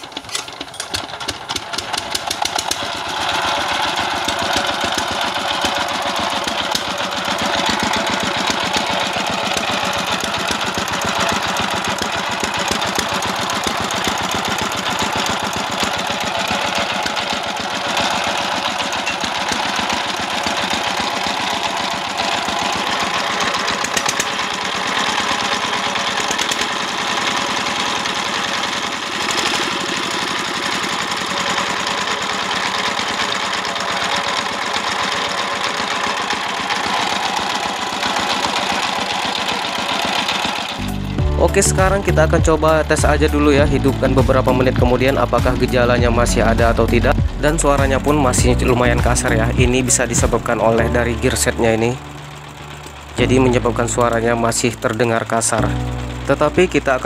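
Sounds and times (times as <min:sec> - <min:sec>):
diesel engine knocking: 0:00.0 - 0:57.0.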